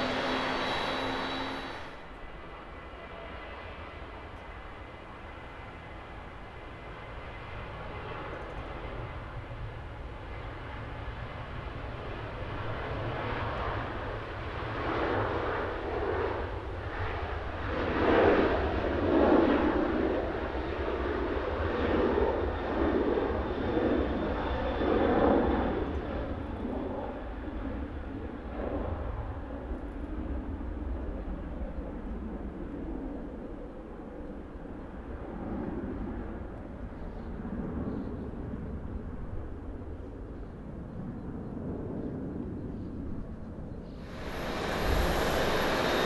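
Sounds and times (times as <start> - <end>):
jet engines at takeoff: 0.0 - 46.0
steady low hum: 42.3 - 46.0.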